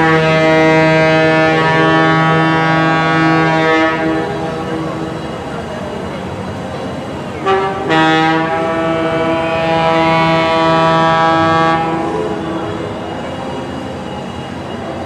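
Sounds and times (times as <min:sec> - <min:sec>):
locomotive horn: 0:00.0 - 0:05.3, 0:07.3 - 0:13.2.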